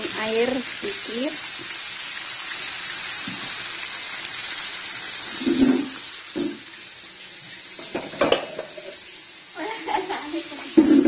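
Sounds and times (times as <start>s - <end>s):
vegetables sizzling in a wok: 0.0s - 11.0s
cookware knocking and clattering: 7.8s - 8.9s.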